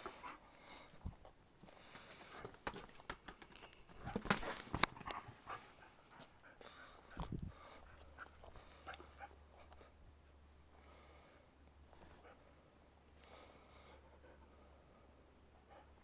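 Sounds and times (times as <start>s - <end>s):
dog panting: 5.0s - 9.9s, 13.7s - 16.0s.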